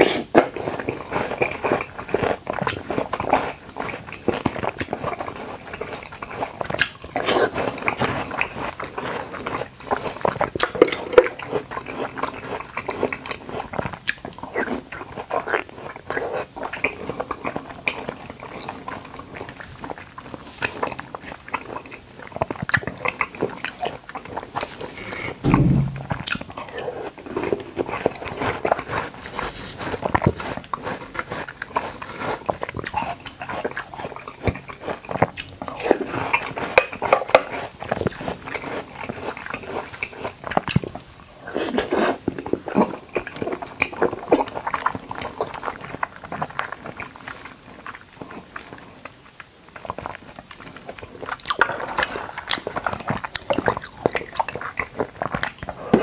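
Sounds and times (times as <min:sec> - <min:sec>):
close chewing and biting: 0:00.0 - 0:25.9, 0:26.8 - 0:56.0
dull low thump: 0:25.4 - 0:26.4.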